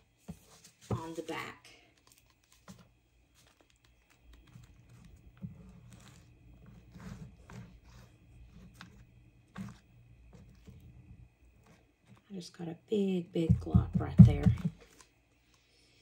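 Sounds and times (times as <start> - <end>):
paper rustling: 0.3 - 10.8.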